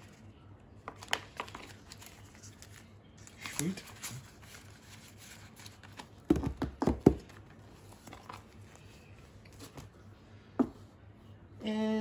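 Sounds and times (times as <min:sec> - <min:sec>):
faint plastic rustling: 0:00.0 - 0:06.4, 0:07.2 - 0:10.2
plastic envelope crinkling: 0:00.9 - 0:06.2.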